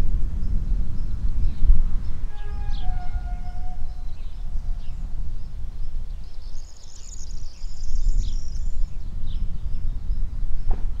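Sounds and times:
small birds chirping: 0:03.8 - 0:10.3.

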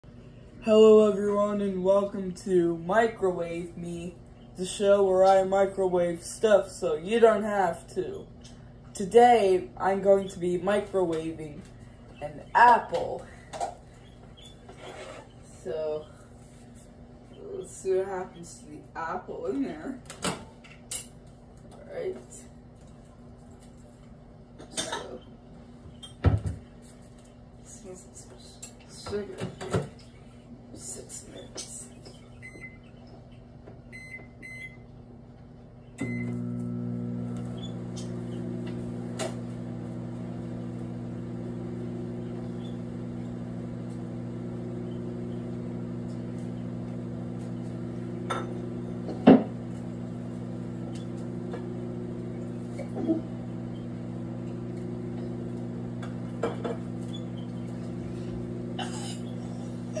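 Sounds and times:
microwave oven humming: 0:00.1 - 0:16.4, 0:28.6 - 1:00.0
microwave keypad beeps: 0:33.9 - 0:34.8.

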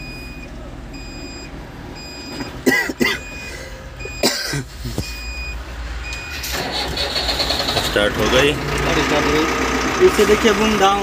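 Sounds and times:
engine starting rumble: 0:06.3 - 0:11.0.

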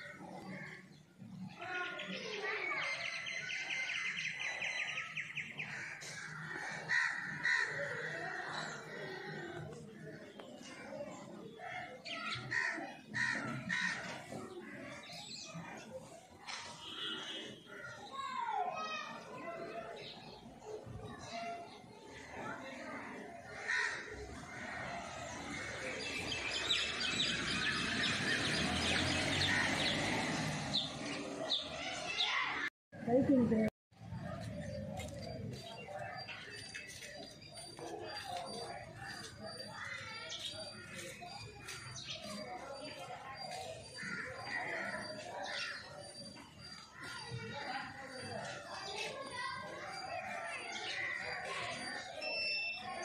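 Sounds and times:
sparrows chirping: 0:00.0 - 0:16.1, 0:18.8 - 0:53.0.

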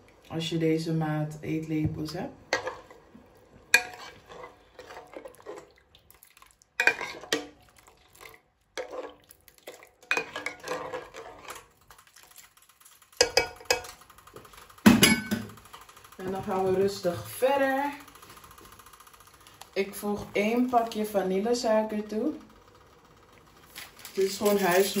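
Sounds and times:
metal cup clinking and scraping: 0:03.8 - 0:05.6, 0:06.8 - 0:07.5, 0:10.0 - 0:11.6.

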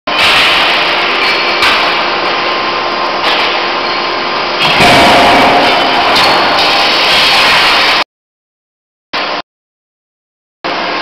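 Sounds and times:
forging hammer machine running: 0:00.1 - 0:08.0.

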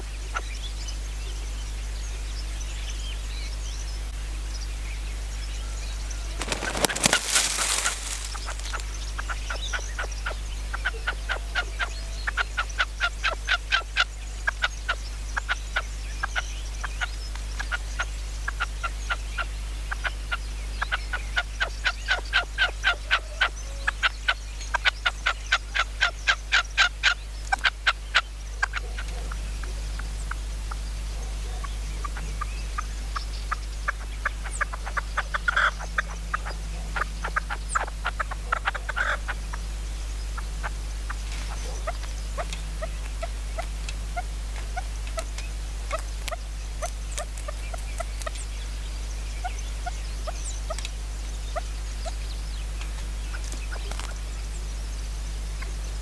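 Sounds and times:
partridge calling: 0:06.2 - 0:10.0, 0:33.9 - 0:39.3.

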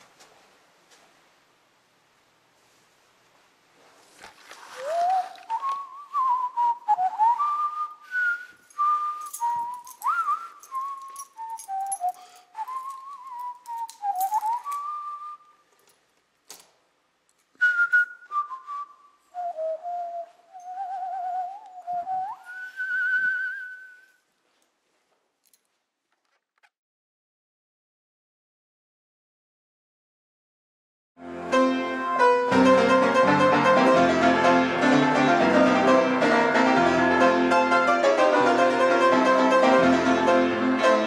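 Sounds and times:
person whistling a tune: 0:04.7 - 0:15.6, 0:17.6 - 0:24.2.

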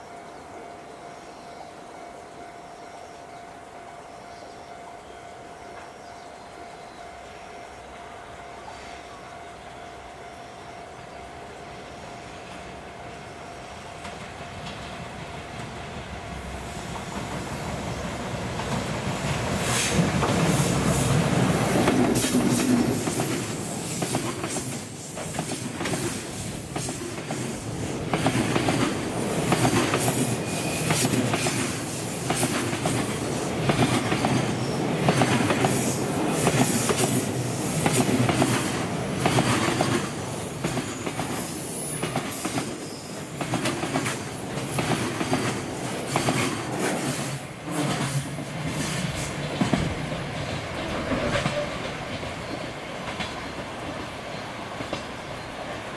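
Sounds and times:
train wheels rumbling: 0:12.4 - 0:55.9
high wheel squeal: 0:23.3 - 0:28.6, 0:30.0 - 0:31.8, 0:38.6 - 0:44.3.

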